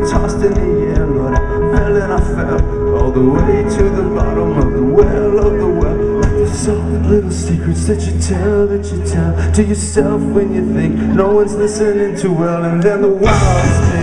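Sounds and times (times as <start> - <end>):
live rock band playing: 0.0 - 14.0.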